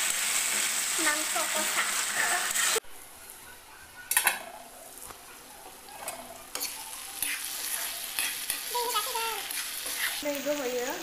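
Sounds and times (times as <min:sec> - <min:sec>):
curry sizzling: 0:00.0 - 0:03.4, 0:04.1 - 0:11.0
metal spatula stirring and scraping: 0:05.8 - 0:10.4.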